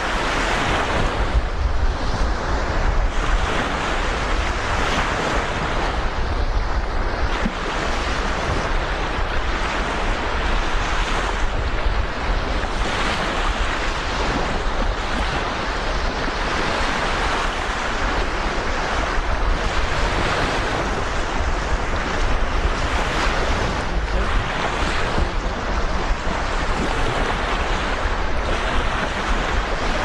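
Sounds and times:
surf washing onto beach: 0:00.0 - 0:30.0
wind rumbling on microphone: 0:00.0 - 0:30.0.

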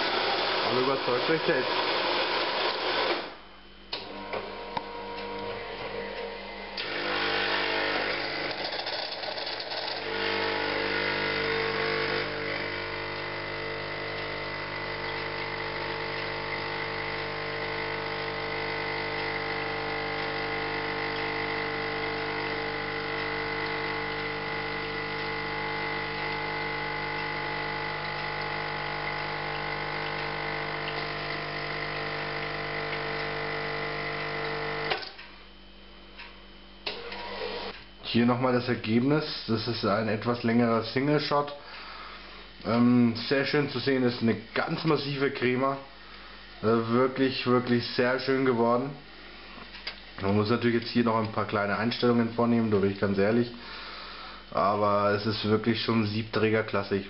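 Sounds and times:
espresso pouring: 0:00.0 - 0:03.3, 0:04.1 - 0:35.0
pump humming: 0:00.0 - 0:38.1, 0:41.1 - 0:55.2.

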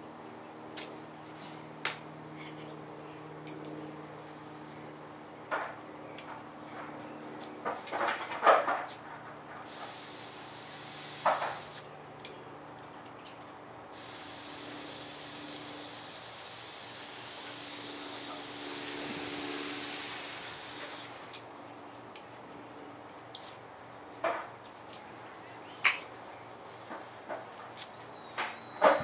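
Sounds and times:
air hissing from valve: 0:09.7 - 0:11.8, 0:13.9 - 0:21.3.

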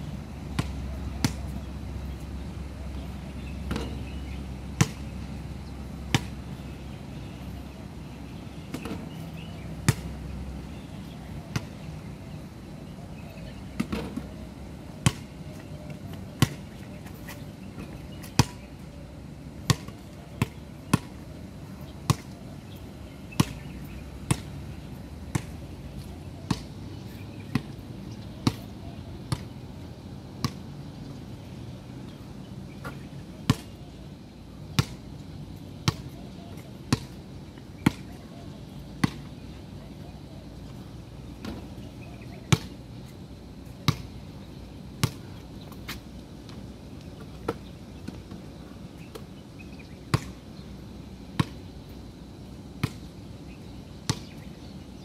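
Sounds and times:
steady background hum: 0:00.0 - 0:55.0
basketball bouncing on a hard court: 0:00.5 - 0:01.5, 0:03.6 - 0:04.0, 0:04.8 - 0:05.0, 0:06.1 - 0:06.4, 0:15.0 - 0:15.3, 0:16.4 - 0:16.6, 0:17.8 - 0:18.6, 0:19.6 - 0:21.2, 0:22.1 - 0:22.3, 0:23.3 - 0:23.7, 0:24.3 - 0:24.5, 0:26.5 - 0:26.7, 0:28.4 - 0:28.7, 0:35.8 - 0:36.2, 0:36.9 - 0:37.2, 0:37.8 - 0:38.2, 0:39.0 - 0:39.3, 0:42.5 - 0:42.8, 0:43.9 - 0:44.1, 0:50.1 - 0:50.4, 0:54.1 - 0:54.3.

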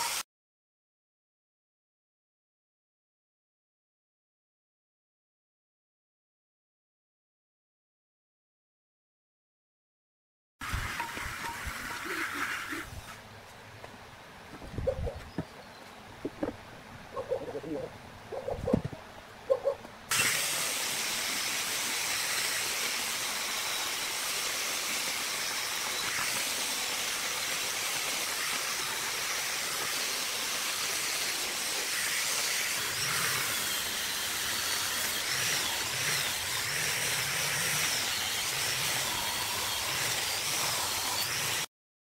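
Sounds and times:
angle grinder grinding metal: 0:10.6 - 0:13.2, 0:20.1 - 0:41.7.

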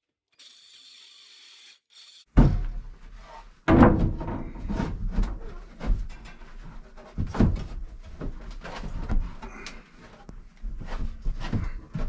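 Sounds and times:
heavy thump: 0:02.3 - 0:03.1, 0:03.7 - 0:06.0
knocks against wooden wall: 0:02.4 - 0:02.9, 0:03.7 - 0:06.0.

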